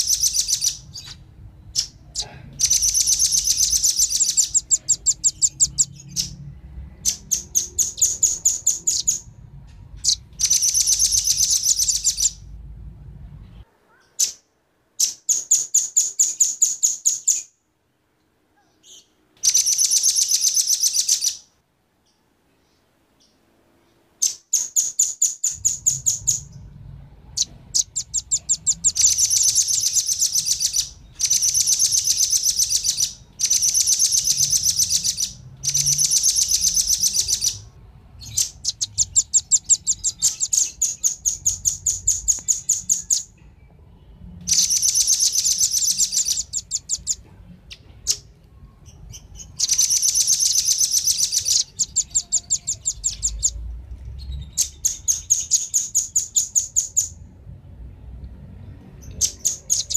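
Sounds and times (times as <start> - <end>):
birds calling in rapid trills: 0.0 - 12.6, 18.9 - 21.6, 24.2 - 26.7, 27.3 - 43.4, 44.5 - 57.2, 59.0 - 59.9
faint low rumble: 0.0 - 13.9, 25.5 - 30.0, 51.6 - 55.3.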